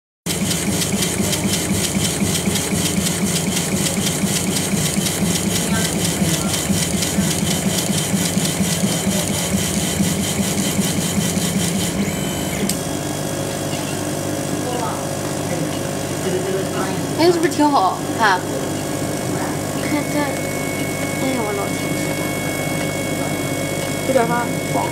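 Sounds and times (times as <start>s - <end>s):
laser engraver head shuttling: 0.3s - 13.9s
steady machine hum: 0.3s - 24.9s.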